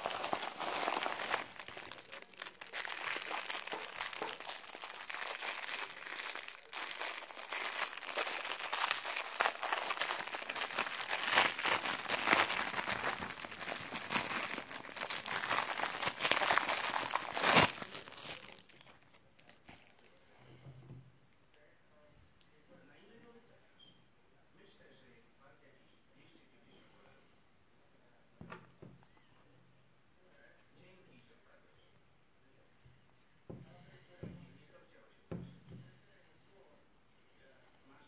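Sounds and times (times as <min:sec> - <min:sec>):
plastic packaging crinkling: 0:00.0 - 0:20.2.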